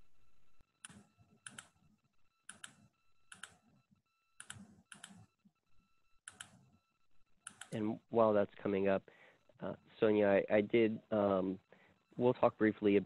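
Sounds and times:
faint steady tone: 0.0 - 13.0
computer clicking: 0.8 - 1.8, 2.5 - 3.6, 4.4 - 5.3, 6.2 - 6.6, 7.4 - 7.9.

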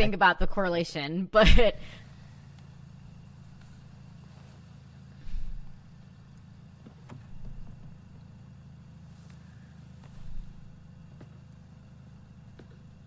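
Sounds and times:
steady low rumble: 1.4 - 12.6
dull thump: 6.8 - 8.1, 10.0 - 11.4.

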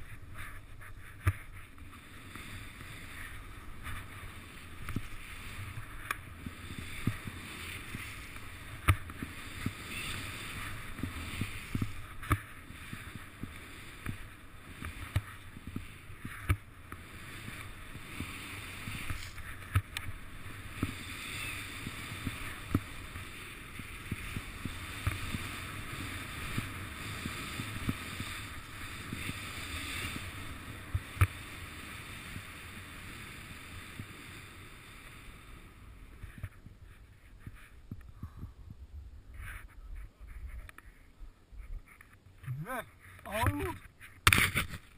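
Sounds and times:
skis hissing through snow: 0.0 - 37.9
sharp ski knocks: 7.9 - 14.2, 18.2 - 20.1, 43.4 - 44.9.

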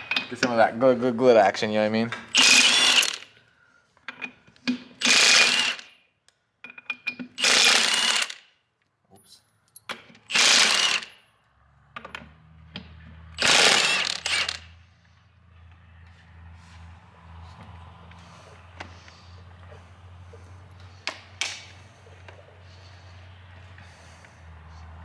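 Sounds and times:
impact wrench hammering: 2.2 - 3.3.

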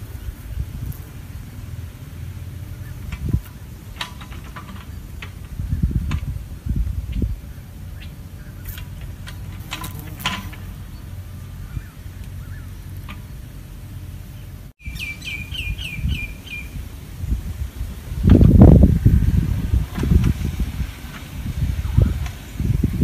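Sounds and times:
songbird chirps: 0.0 - 16.8
low rumbling background noise: 0.0 - 23.0.

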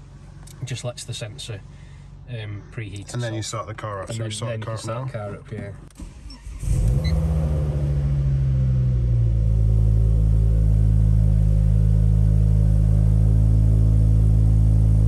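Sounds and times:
car engine starting and idling: 2.8 - 15.0.

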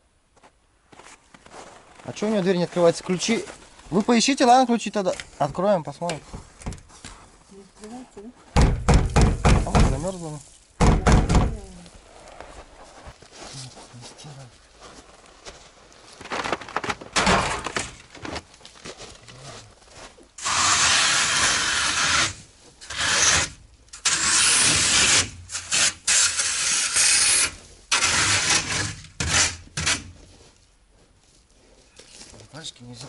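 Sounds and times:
scraping and rubbing snow: 12.0 - 16.8.

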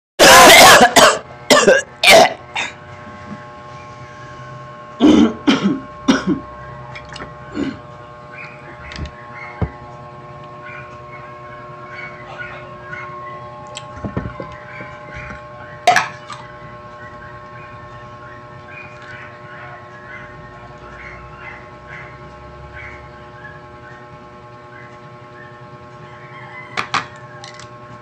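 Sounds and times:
man coughing: 0.2 - 2.8, 5.0 - 6.5.

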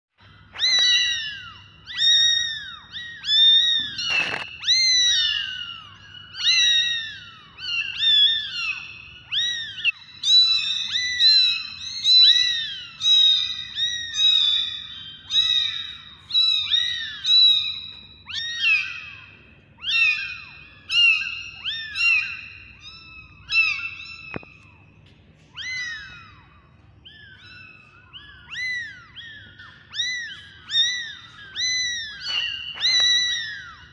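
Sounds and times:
kittens meowing: 0.2 - 33.9.

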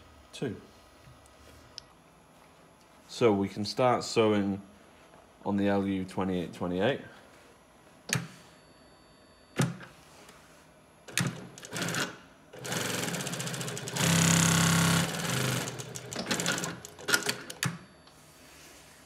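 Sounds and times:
sewing machine stitching: 11.1 - 17.7.

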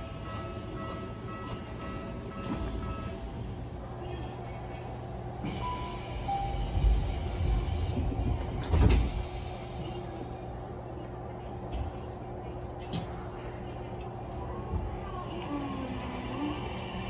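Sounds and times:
train doors closing with a thud: 0.0 - 3.2, 5.4 - 9.5
train car low hum: 0.0 - 17.0.

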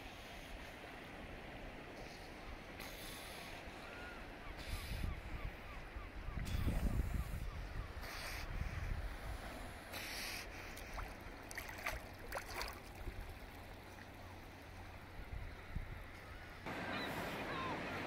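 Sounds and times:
water lapping and trickling: 0.0 - 18.0
small water splashes: 10.8 - 14.7.

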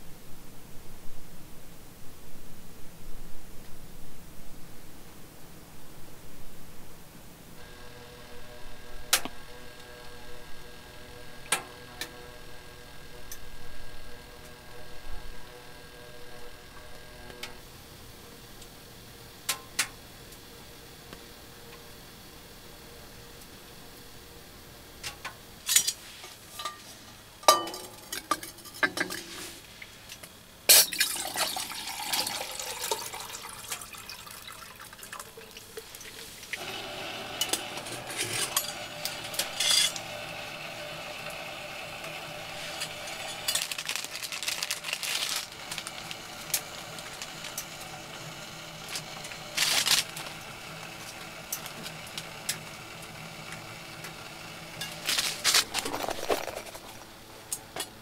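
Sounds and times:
faint hum: 0.0 - 58.0
spoon clinking on metal mug: 27.4 - 29.2
liquid sounds: 30.8 - 36.6.

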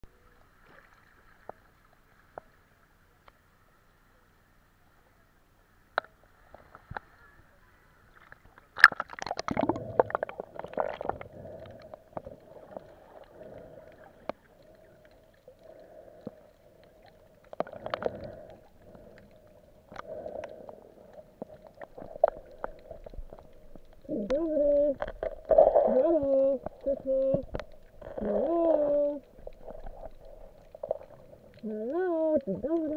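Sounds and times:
muffled underwater rushing water: 0.1 - 32.9.

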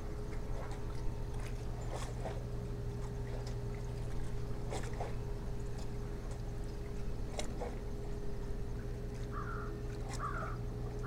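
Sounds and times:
electrical hum: 0.0 - 11.0
small waves lapping on rocks: 9.1 - 11.0.

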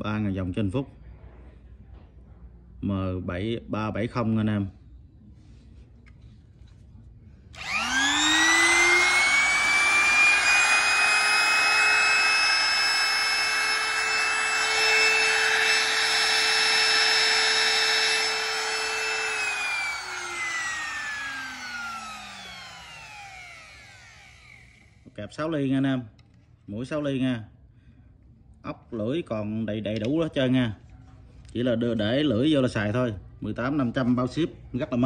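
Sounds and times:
router motor whining: 7.5 - 25.1.

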